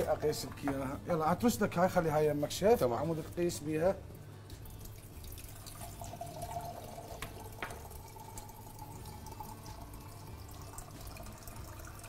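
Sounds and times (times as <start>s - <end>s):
water running into a cup: 4.5s - 12.0s.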